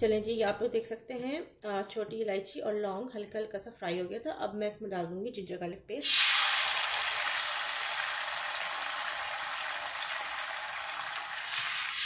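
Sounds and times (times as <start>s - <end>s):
paste sizzling in hot oil: 6.0s - 12.0s.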